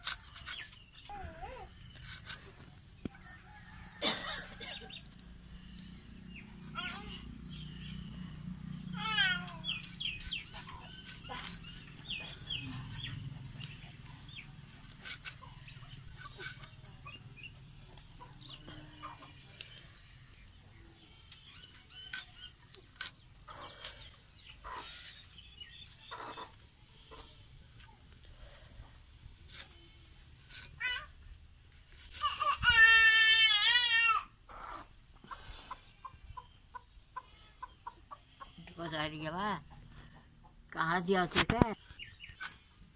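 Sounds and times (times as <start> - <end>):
hen clucking: 26.0 - 27.4, 34.5 - 42.4.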